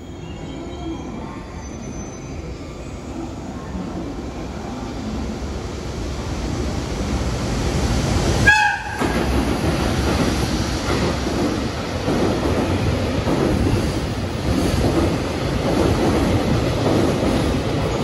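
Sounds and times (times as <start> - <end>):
train rumbling past: 0.0 - 18.0
train horn blast: 8.4 - 9.2.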